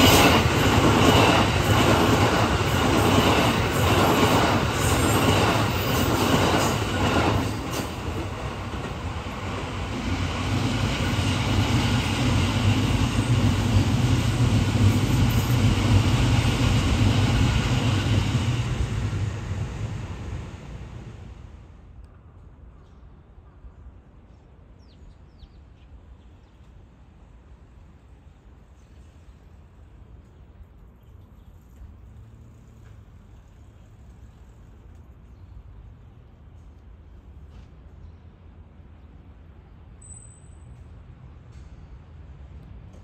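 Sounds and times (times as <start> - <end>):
train clattering over rail joints: 0.0 - 19.4
train rumble with high tone: 0.0 - 43.0.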